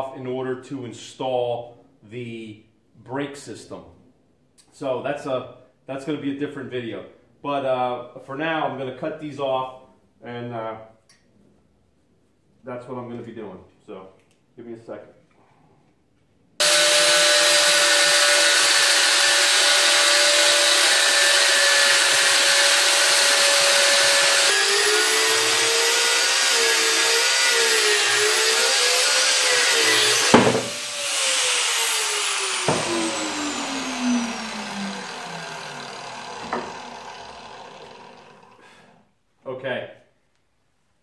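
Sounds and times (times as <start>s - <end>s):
angle grinder cutting metal: 16.6s - 38.9s.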